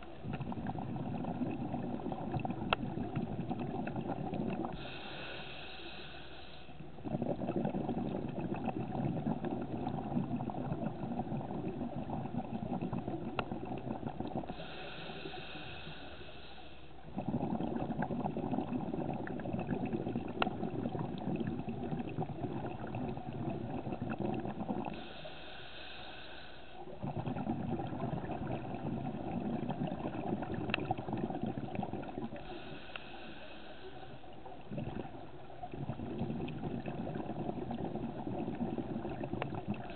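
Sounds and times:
bubbling exhale underwater: 0:00.0 - 0:05.6, 0:06.8 - 0:16.3, 0:17.0 - 0:25.5, 0:26.8 - 0:39.9
regulator hissing inhale: 0:04.7 - 0:06.8, 0:14.4 - 0:17.0, 0:24.8 - 0:26.9, 0:32.3 - 0:34.4.

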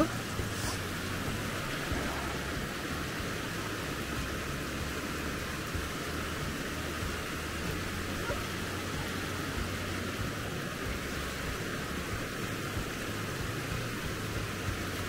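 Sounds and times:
wind blowing over microphone: 0:00.0 - 0:05.6.

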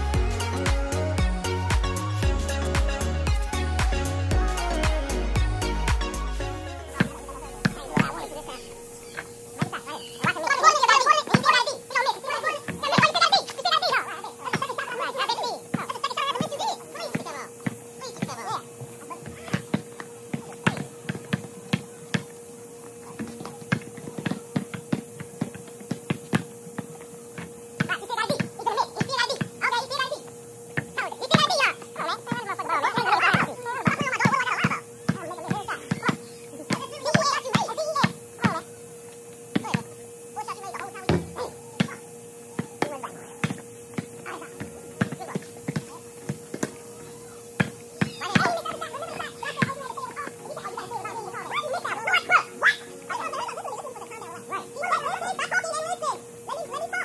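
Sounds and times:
steady hum: 0:00.0 - 0:57.0
faint voices: 0:06.7 - 0:57.0
basketball bouncing on a court: 0:07.0 - 0:08.6, 0:09.2 - 0:11.6, 0:12.5 - 0:13.4, 0:14.4 - 0:14.8, 0:15.7 - 0:18.6, 0:19.2 - 0:29.9, 0:30.7 - 0:38.7, 0:39.5 - 0:39.9, 0:40.7 - 0:42.0, 0:42.6 - 0:51.2.

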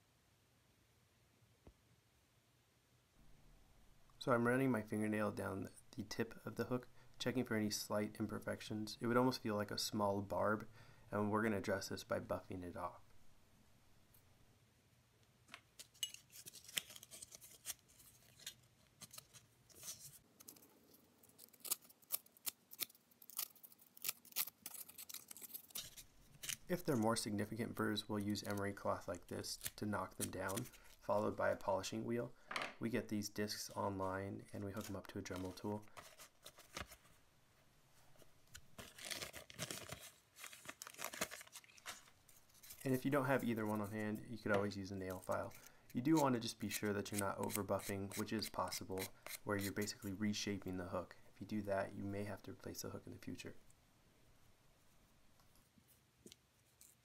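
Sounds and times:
plastic packet crinkling: 0:15.8 - 0:26.9, 0:29.5 - 0:31.0, 0:38.7 - 0:43.9.

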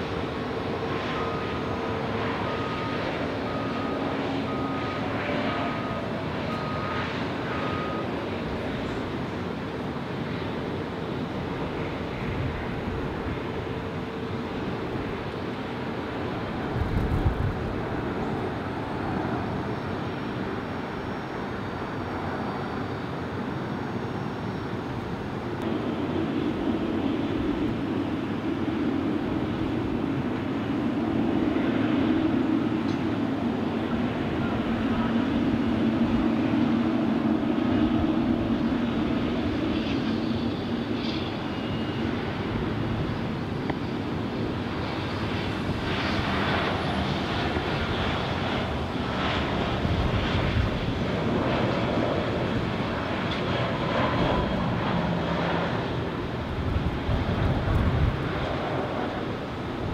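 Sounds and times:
jet engines droning: 0:00.0 - 0:59.9.

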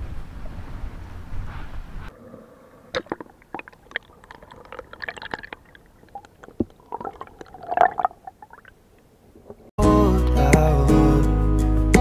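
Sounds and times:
bubbling gurgle: 0:02.1 - 0:09.7
underwater stream gurgling: 0:02.1 - 0:09.7
small underwater clicks and crackles: 0:02.9 - 0:09.7.

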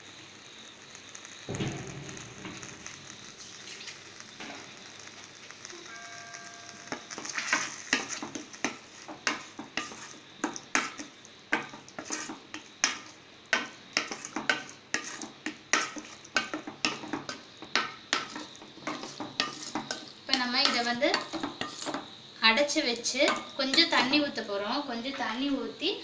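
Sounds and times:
food sizzling in a pan: 0:00.0 - 0:26.0
utensil scraping a pan: 0:07.2 - 0:22.1.

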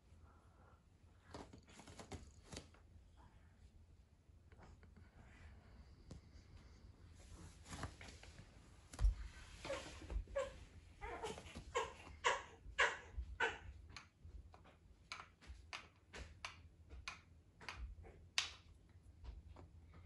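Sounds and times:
decorations clicking on wooden shelf: 0:13.9 - 0:19.8.

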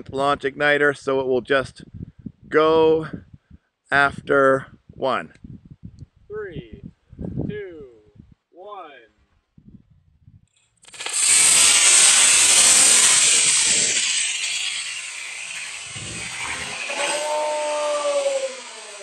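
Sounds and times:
rocket motor rushing hiss: 0:10.9 - 0:19.0.

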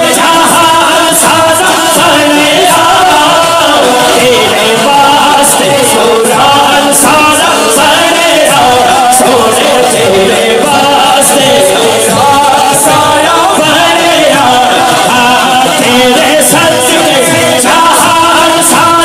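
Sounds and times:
men singing devotional song: 0:00.0 - 0:19.0.

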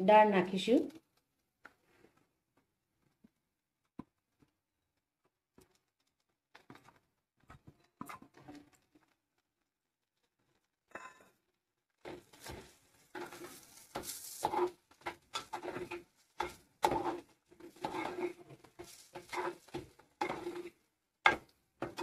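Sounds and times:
spoon scraping in pot: 0:12.0 - 0:22.0.

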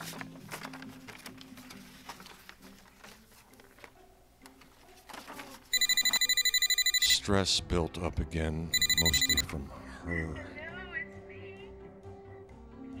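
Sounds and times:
papers rustling: 0:00.0 - 0:05.8
telephone warbling ring: 0:05.7 - 0:07.2, 0:08.8 - 0:09.4.

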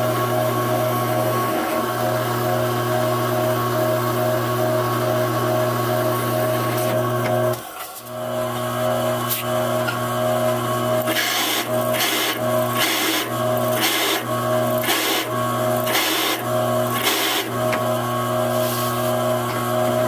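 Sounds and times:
drill press motor hum: 0:05.4 - 0:20.0
hole cutter grinding steel: 0:11.0 - 0:18.0.

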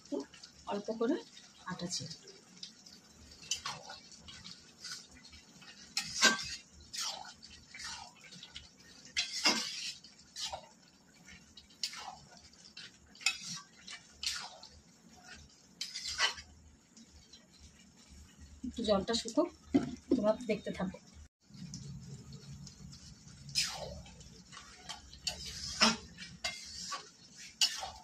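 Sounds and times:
metal spatula scraping pot: 0:03.4 - 0:16.5, 0:22.9 - 0:28.0.

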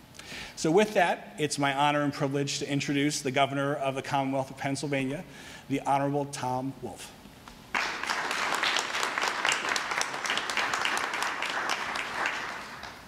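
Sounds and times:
audience applauding: 0:07.7 - 0:13.0.

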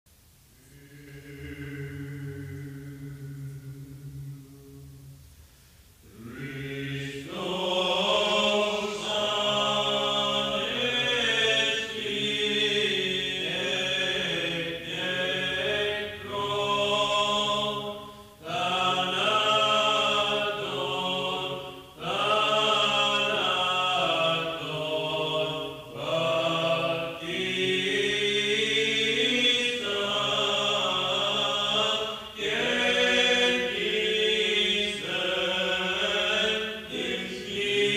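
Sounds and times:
low drone note: 0:01.2 - 0:05.6
man chanting a hymn: 0:06.1 - 0:37.9.

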